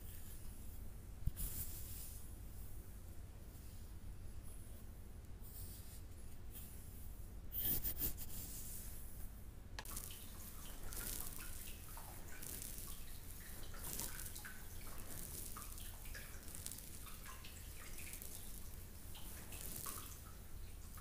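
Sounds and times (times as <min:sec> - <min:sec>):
soft steady hiss: 0:00.0 - 0:21.0
water dripping and trickling: 0:09.8 - 0:21.0.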